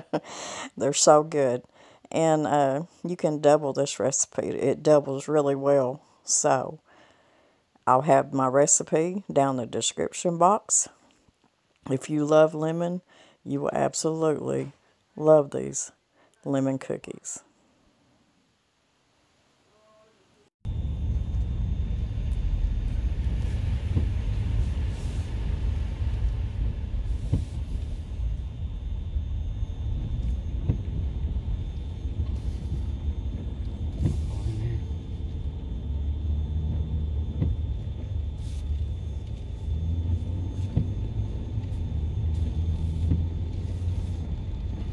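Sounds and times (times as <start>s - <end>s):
vehicle rumble from inside cab: 20.6s - 44.9s
faint knocks and bumps: 35.0s - 44.9s.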